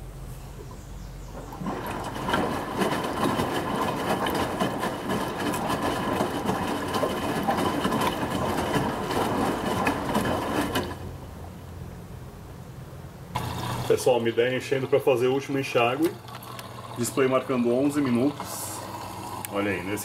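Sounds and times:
water and clothes sloshing: 0:01.4 - 0:11.2
washing machine motor whining: 0:01.4 - 0:11.3, 0:13.3 - 0:20.0.

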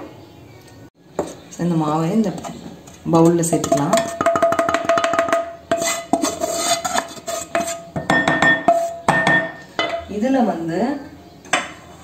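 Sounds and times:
utensil scraping and knocking on pan: 0:02.3 - 0:10.1.

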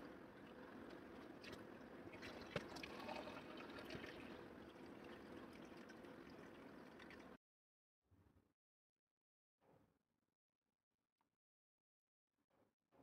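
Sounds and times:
water trickling into a jug: 0:00.0 - 0:07.4.

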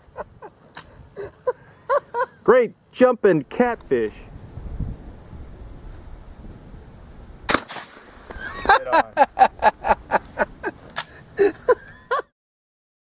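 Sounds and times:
shotgun shot: 0:07.5 - 0:08.3.

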